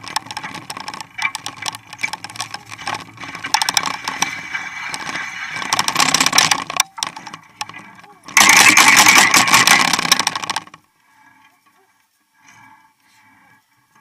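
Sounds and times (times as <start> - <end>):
bike rattles and clicks: 0.0 - 10.9
bike tyre rolling noise: 0.0 - 14.0.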